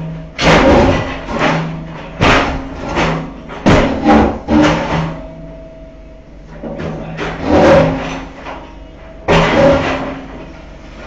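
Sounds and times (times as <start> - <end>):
concrete slabs crashing and breaking: 0.4 - 5.2, 7.3 - 8.3, 9.3 - 10.2.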